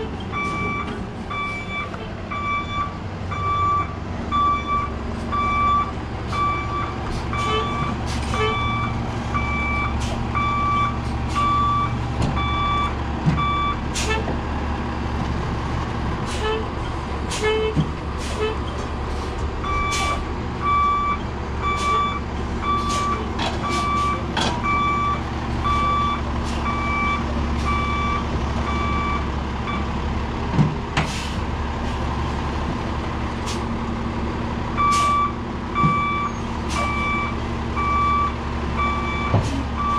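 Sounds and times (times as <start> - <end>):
diesel engine running: 0.0 - 39.9
truck reversing alarm beeping: 0.3 - 14.3, 19.6 - 30.0, 34.7 - 39.9.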